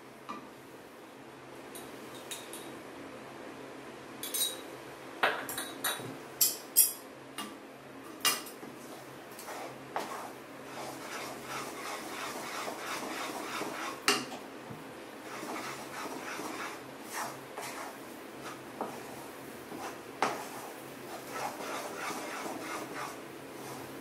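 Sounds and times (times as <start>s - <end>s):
spatula scraping pan: 8.8s - 14.1s, 15.2s - 24.0s.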